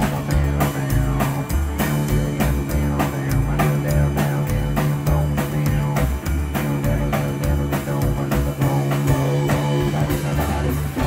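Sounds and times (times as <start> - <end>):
boogie-woogie piano: 0.0 - 11.0
drum kit beat: 0.0 - 11.0
walking double bass line: 0.0 - 11.0.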